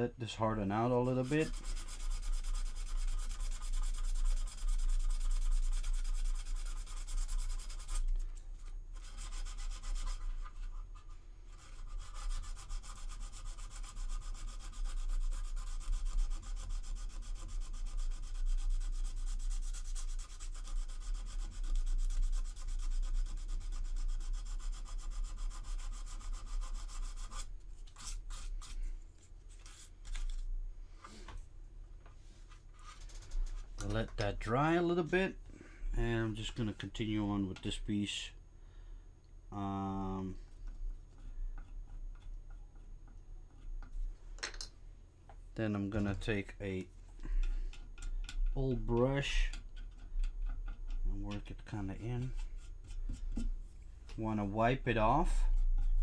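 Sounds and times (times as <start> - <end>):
sandpaper rubbing on plastic: 0.8 - 8.1, 9.0 - 28.8.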